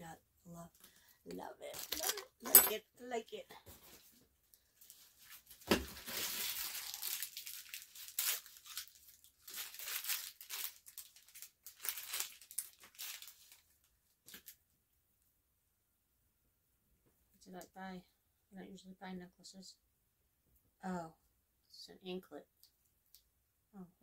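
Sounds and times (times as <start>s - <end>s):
packaging tearing and crinkling: 4.9s - 13.7s.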